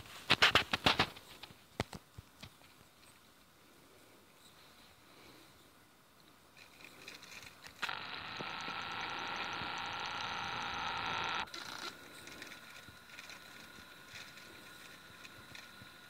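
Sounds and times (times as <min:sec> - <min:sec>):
camera zoom motor whirring: 0:07.4 - 0:16.0.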